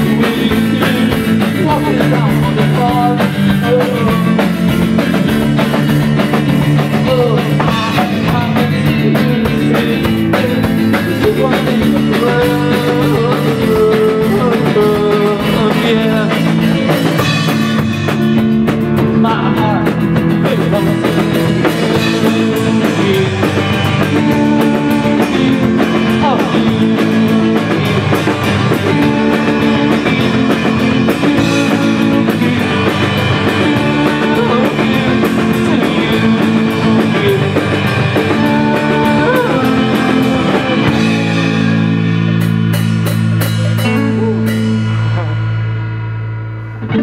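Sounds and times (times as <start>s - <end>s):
drum kit hits: 0.0s - 47.0s
rock band playing live: 0.0s - 47.0s
guitar chord ringing: 41.5s - 47.0s.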